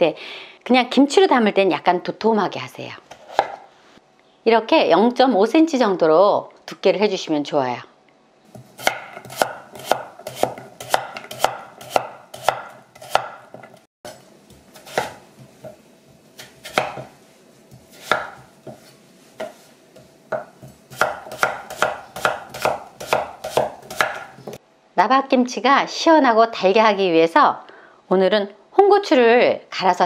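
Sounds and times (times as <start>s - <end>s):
knife slicing on cutting board: 3.1s - 3.6s, 8.5s - 24.6s.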